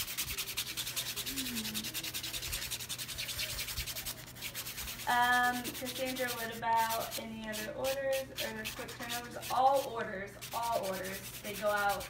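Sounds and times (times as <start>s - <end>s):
nail buffer rubbing: 0.0s - 12.0s.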